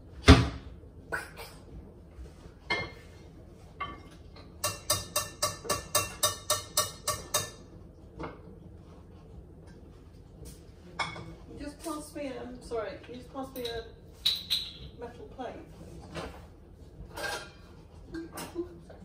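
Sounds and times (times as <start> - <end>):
pans and utensils clattering: 2.6 - 8.5, 13.4 - 15.0, 16.1 - 18.7.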